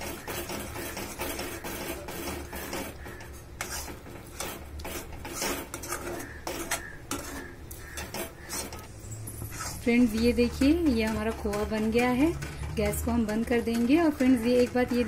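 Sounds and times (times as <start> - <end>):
spatula scraping metal pan: 0.0 - 15.0.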